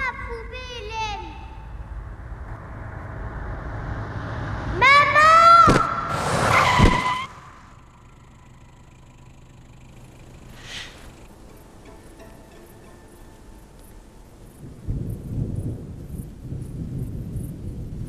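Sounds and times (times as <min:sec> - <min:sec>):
car approaching: 0:01.5 - 0:14.9
tyres screeching: 0:05.2 - 0:14.3
faint low hum: 0:07.4 - 0:18.0.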